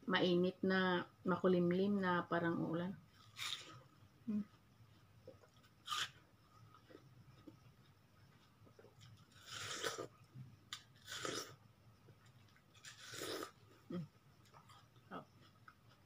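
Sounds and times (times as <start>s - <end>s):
quiet chewing: 12.1s - 16.0s.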